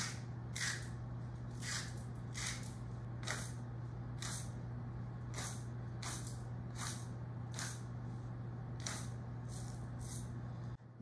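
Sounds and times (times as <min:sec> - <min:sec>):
spice mill grinding: 0:00.0 - 0:04.6, 0:05.3 - 0:07.9
steady low hum: 0:00.0 - 0:11.0.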